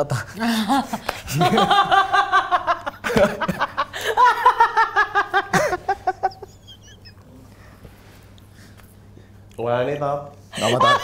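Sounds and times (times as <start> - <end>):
woman laughing hard: 0.4 - 7.2, 10.6 - 11.0.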